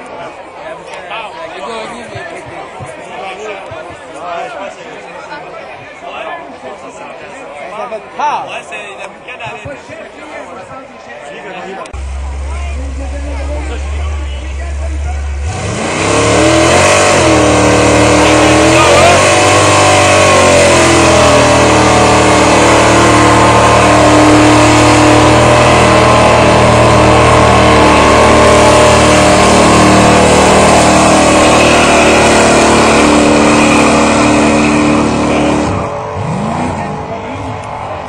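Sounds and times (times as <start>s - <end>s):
truck engine revving: 11.9s - 38.0s.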